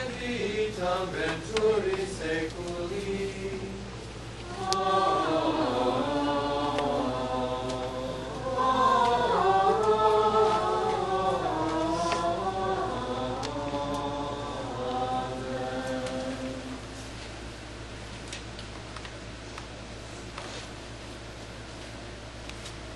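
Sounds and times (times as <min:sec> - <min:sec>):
group of voices chanting: 0:04.5 - 0:16.8.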